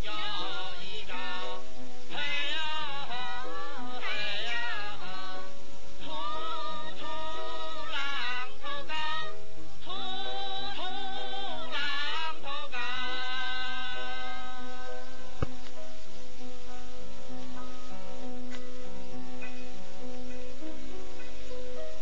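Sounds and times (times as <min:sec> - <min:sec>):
slow film score melody: 0:00.0 - 0:22.0.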